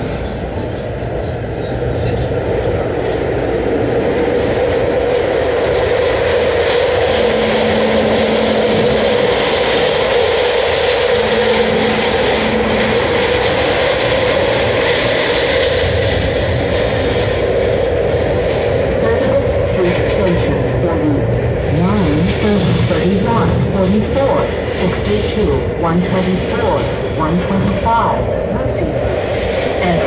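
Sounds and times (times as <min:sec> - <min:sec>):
trolley wheels rumbling on rails: 0:00.0 - 0:30.0
low steady hum: 0:06.5 - 0:16.6.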